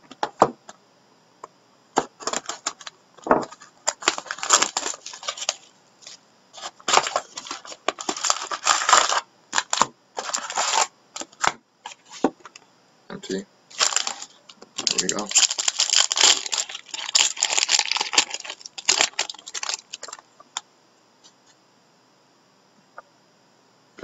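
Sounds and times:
packaging crinkling: 2.2 - 12.2, 13.7 - 20.6
cardboard box tearing: 6.6 - 10.9.

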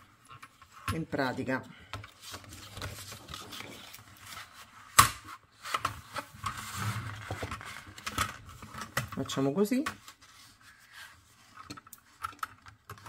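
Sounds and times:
paper rustling and sliding: 2.1 - 9.0.

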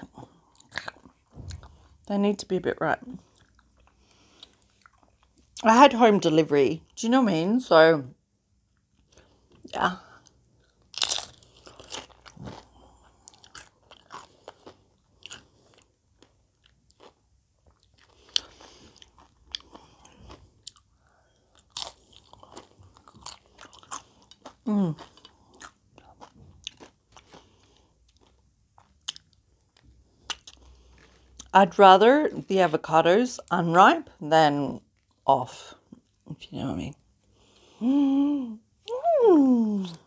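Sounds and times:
chewing crunchy chips: 3.2 - 5.5, 9.0 - 31.6
person humming: 37.8 - 40.0.

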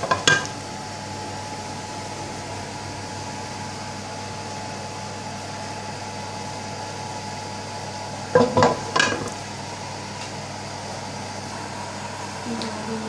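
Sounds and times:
frying pan clattering on hob: 0.0 - 0.5, 8.3 - 9.3
steady hum: 0.0 - 13.0.

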